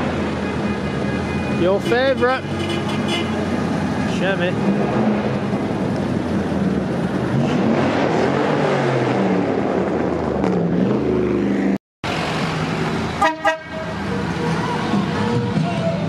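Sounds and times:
pickup truck engine passing: 3.3s - 16.0s.

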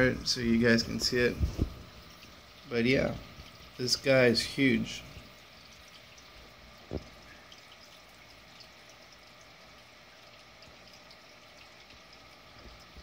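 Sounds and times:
light water drips: 0.0s - 13.0s
water trickling in aquarium: 0.0s - 13.0s
soft low thump: 1.4s - 1.8s, 6.9s - 7.2s.

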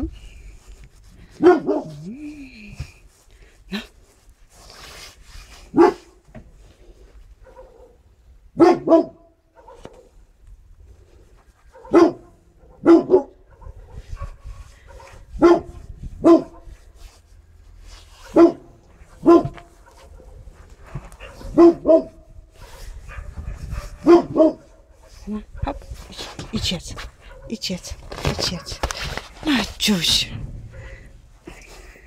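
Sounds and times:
dog barking: 1.4s - 2.1s, 5.7s - 6.2s, 7.4s - 10.2s, 11.7s - 16.8s, 18.2s - 24.8s, 27.2s - 27.6s.

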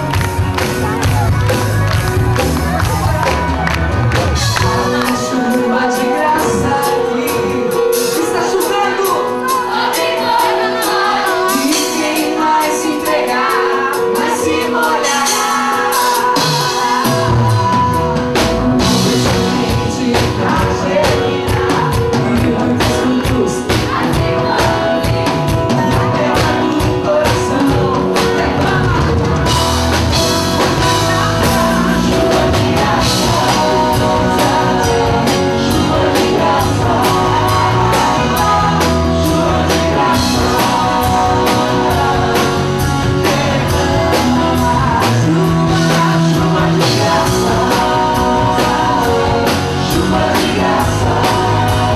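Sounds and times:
rock band with drums and guitars: 0.0s - 51.9s
woman singing into microphone: 4.4s - 29.8s.

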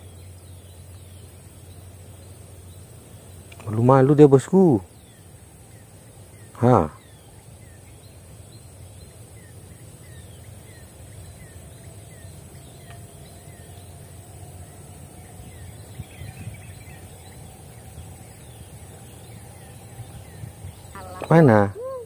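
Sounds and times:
bird chirping: 0.0s - 22.0s
high-pitched insect hiss: 0.0s - 22.0s.

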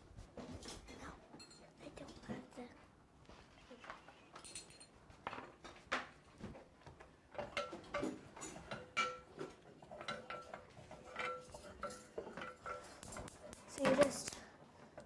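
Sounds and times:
utensils clinking on pots and pans: 1.4s - 1.7s, 4.4s - 5.6s, 7.3s - 14.2s.

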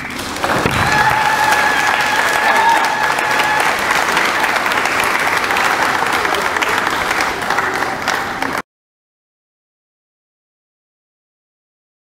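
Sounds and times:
audience applauding: 0.0s - 8.6s.

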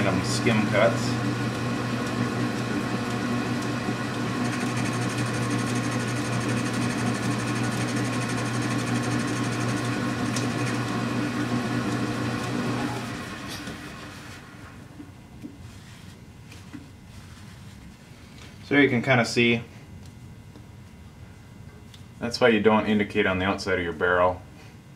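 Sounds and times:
metal lathe running: 0.0s - 14.2s.

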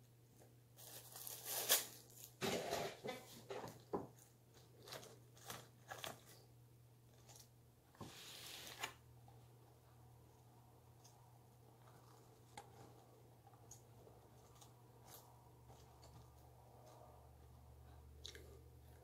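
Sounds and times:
paper wrapper crinkling: 0.8s - 2.4s, 4.1s - 6.5s
crunching bites and chewing: 18.2s - 19.0s.

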